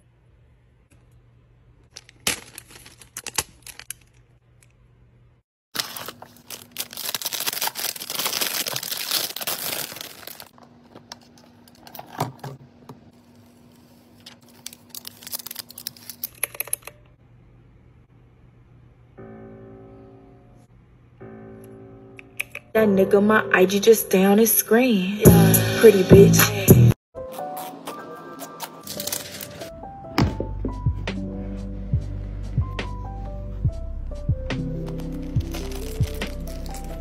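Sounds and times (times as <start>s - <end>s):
plastic packaging crinkling: 1.9s - 4.4s, 5.8s - 12.1s, 13.3s - 16.4s, 28.3s - 29.8s, 34.7s - 37.0s.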